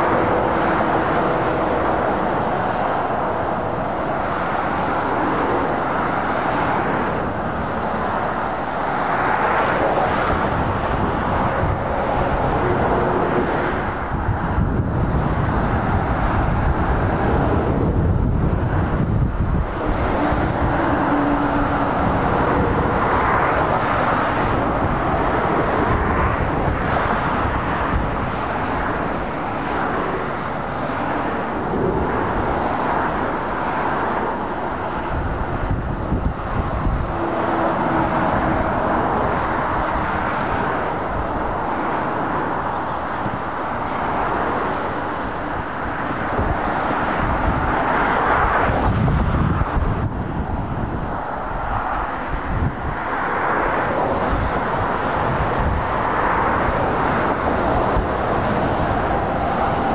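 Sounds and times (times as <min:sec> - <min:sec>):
traffic passing: 0:00.0 - 0:59.9.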